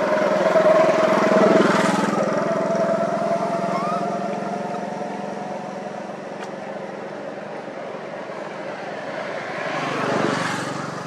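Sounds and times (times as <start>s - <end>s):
motor engine running: 0.0s - 7.3s.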